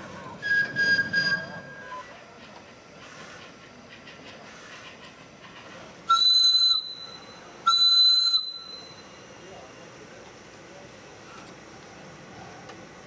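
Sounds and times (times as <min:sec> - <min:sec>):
steam whistle blasts: 0:06.1 - 0:09.0.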